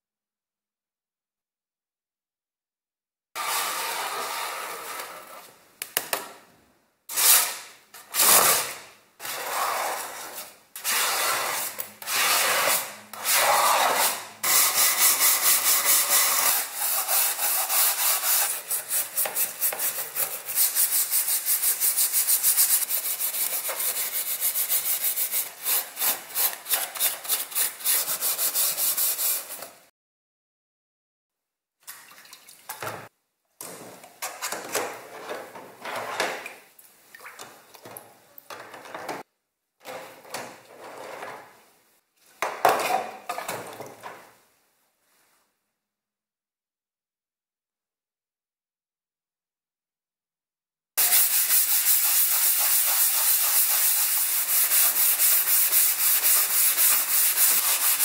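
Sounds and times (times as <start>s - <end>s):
scraper scraping sheet metal: 7.1s - 20.7s.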